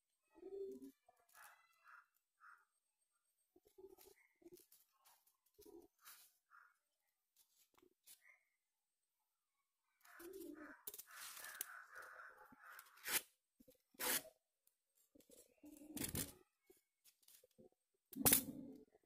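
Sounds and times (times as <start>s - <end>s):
paper rustling and crinkling: 4.0s - 6.4s, 10.9s - 11.7s.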